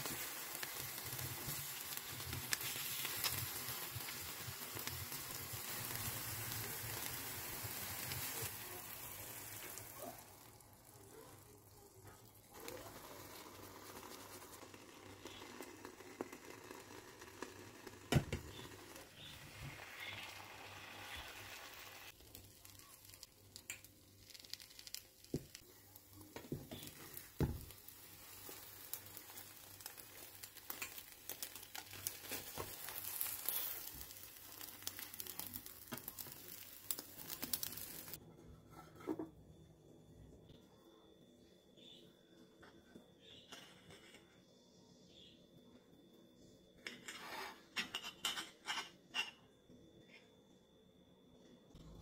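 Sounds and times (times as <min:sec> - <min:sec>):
eggs sizzling in a frying pan: 0:00.0 - 0:38.3.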